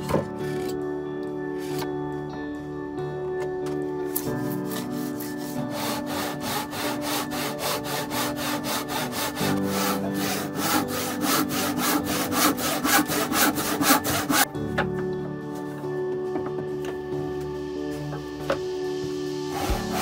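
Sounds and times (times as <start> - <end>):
background music: 0.0 - 20.0
saw cutting wooden board: 4.5 - 14.5, 19.4 - 20.0.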